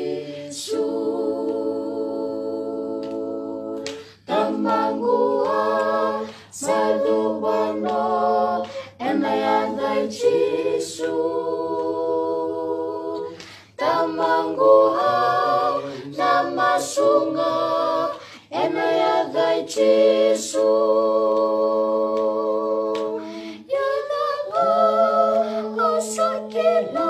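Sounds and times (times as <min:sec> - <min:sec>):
choir singing a cappella: 0:00.0 - 0:27.0
singers breathing: 0:06.2 - 0:06.5, 0:08.6 - 0:09.0, 0:13.3 - 0:13.8, 0:18.2 - 0:18.5, 0:23.2 - 0:23.7.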